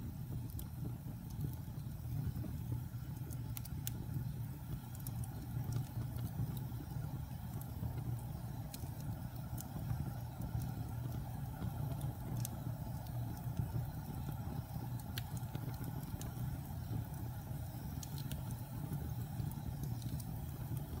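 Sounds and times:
low rumble of flames: 0.0s - 21.0s
logs crackling: 7.5s - 21.0s.

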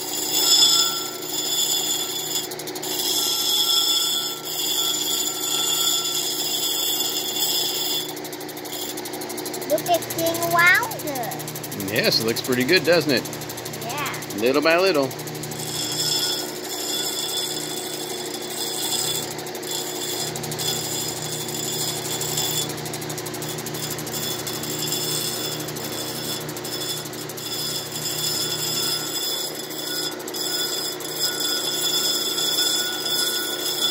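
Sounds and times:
stone scratchy grinding: 0.0s - 9.0s, 14.4s - 22.8s, 23.4s - 33.9s
grinding machine hum and whine: 0.0s - 33.9s.

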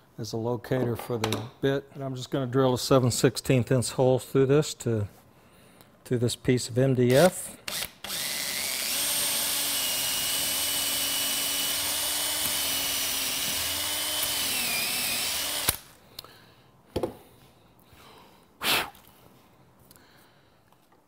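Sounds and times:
electric drill boring through wood: 7.7s - 15.9s.

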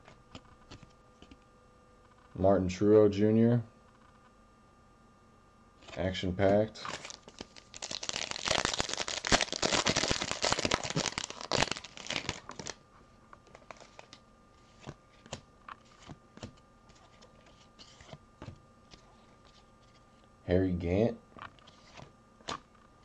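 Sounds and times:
cards being handled: 5.8s - 12.8s, 13.4s - 20.2s, 21.4s - 22.8s
foil wrapper crinkling: 6.8s - 12.8s, 13.4s - 14.2s.

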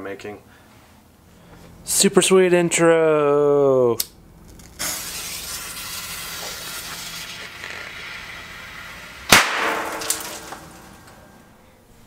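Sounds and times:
firecracker fuse hissing: 4.8s - 11.1s
firecracker bang: 9.2s - 11.1s
small pop: 9.3s - 11.2s.

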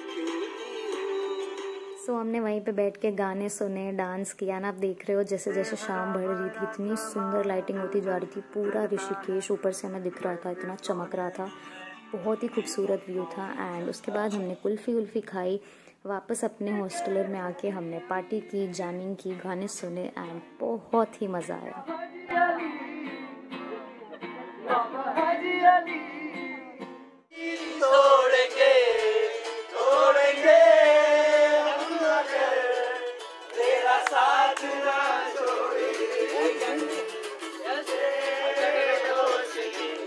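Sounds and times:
strummed acoustic guitars: 21.6s - 40.0s
voices singing: 21.7s - 40.0s.

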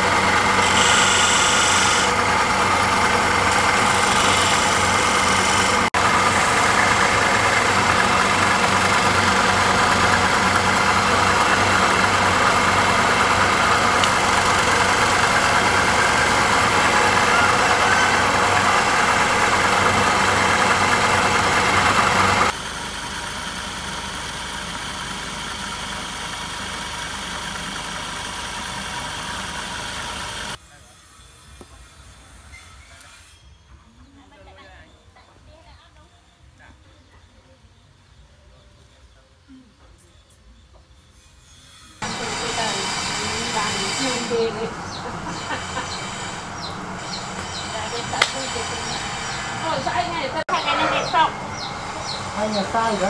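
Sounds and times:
chisel cutting spinning wood: 0.0s - 30.6s, 41.7s - 53.0s
wood lathe humming: 0.0s - 30.6s, 42.0s - 53.0s.

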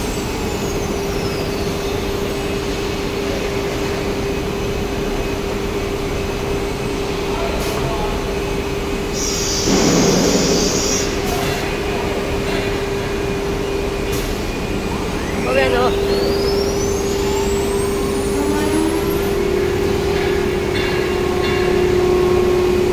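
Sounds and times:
machine noise: 0.0s - 22.9s
air hiss: 9.1s - 11.4s.

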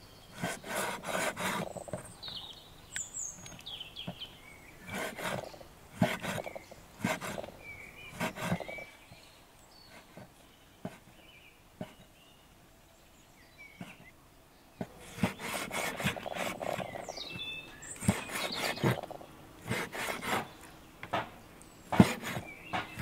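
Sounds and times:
small birds chirping: 0.0s - 23.0s
knife cutting meat on board: 14.8s - 17.0s, 18.0s - 20.5s, 21.9s - 23.0s.

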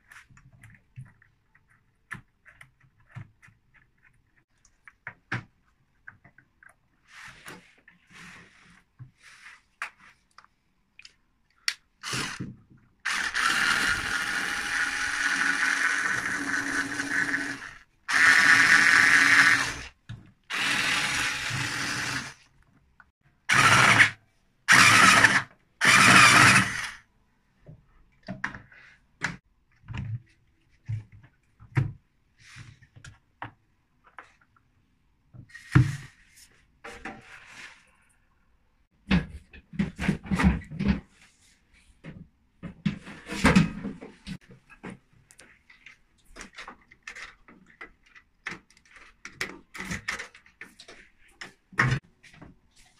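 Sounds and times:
electric screwdriver running: 12.0s - 12.4s, 13.1s - 19.9s, 20.5s - 22.4s, 23.5s - 27.0s.

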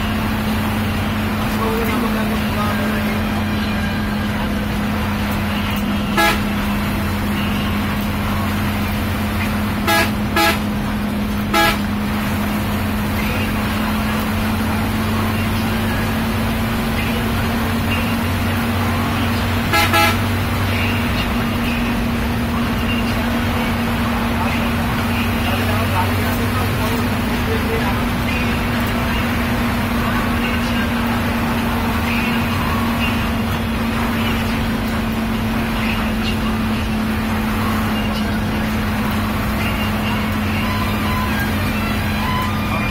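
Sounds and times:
bus engine and road hum: 0.0s - 42.9s
horn toots: 5.8s - 7.6s, 9.8s - 10.9s, 11.5s - 12.0s, 19.6s - 20.4s.

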